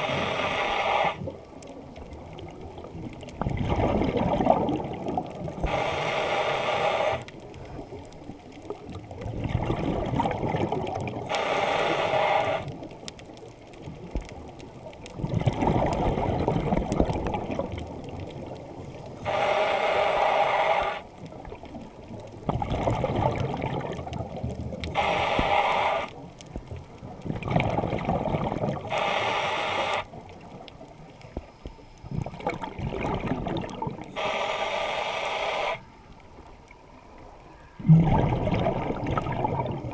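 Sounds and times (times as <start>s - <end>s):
regulator inhalation hiss: 0.0s - 1.3s, 5.6s - 7.3s, 11.3s - 12.8s, 19.2s - 21.1s, 25.0s - 26.2s, 28.9s - 30.1s, 34.1s - 35.9s
exhaled air bubbling: 0.0s - 39.9s.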